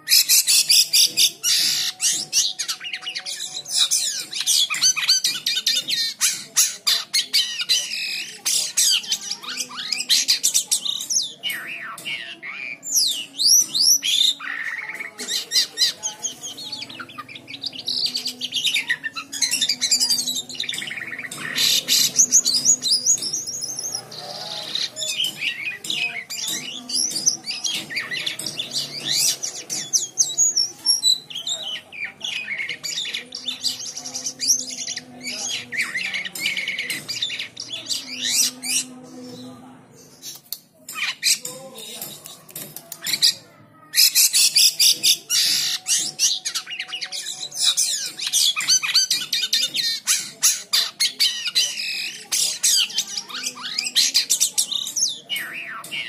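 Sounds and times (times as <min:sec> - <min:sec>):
songbird singing: 0:00.0 - 0:43.4.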